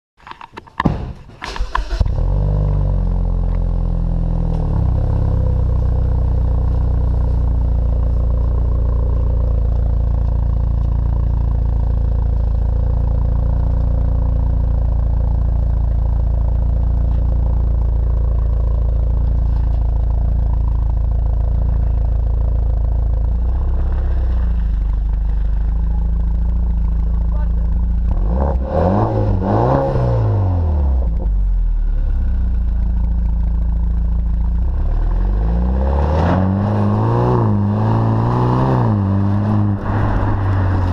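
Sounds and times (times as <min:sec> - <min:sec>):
car engine starting and idling: 0:01.4 - 0:40.9.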